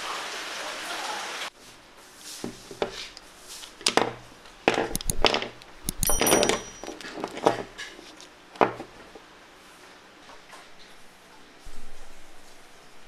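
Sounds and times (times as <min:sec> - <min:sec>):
high ringing note: 0:05.9 - 0:06.9.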